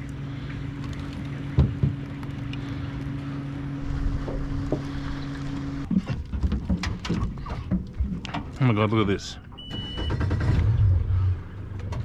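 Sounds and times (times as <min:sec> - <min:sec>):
boat motor humming: 0:00.0 - 0:09.6
knocks and clatters: 0:05.9 - 0:08.5.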